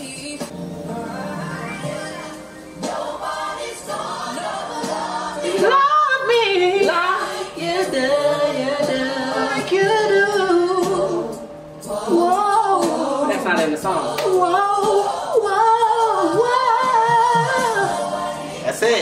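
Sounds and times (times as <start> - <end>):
woman singing a soulful ballad: 0.0 - 1.0, 4.0 - 18.6
backing singers harmonizing: 0.0 - 19.0.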